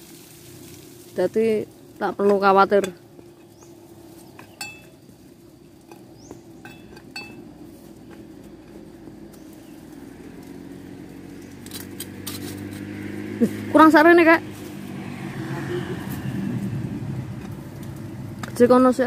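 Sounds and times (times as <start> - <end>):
motor vehicle humming: 0.0 - 19.0
metal tool striking rock: 4.4 - 5.0, 5.9 - 7.5.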